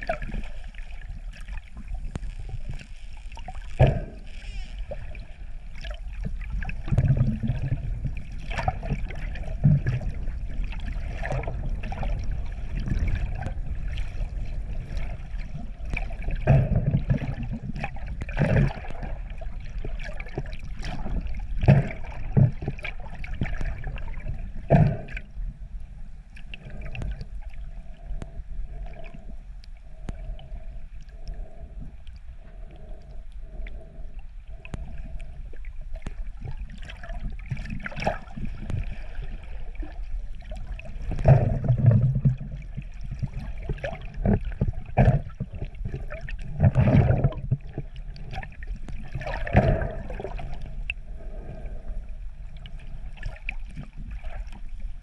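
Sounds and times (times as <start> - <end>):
steady low rumble: 0.0 - 55.0
water sloshing and gurgling: 0.0 - 55.0.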